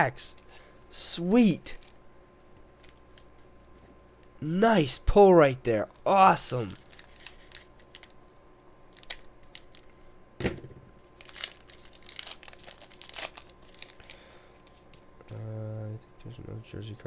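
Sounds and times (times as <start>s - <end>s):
foil wrapper crinkling and tearing: 6.6s - 8.2s, 8.9s - 10.0s, 11.0s - 15.0s.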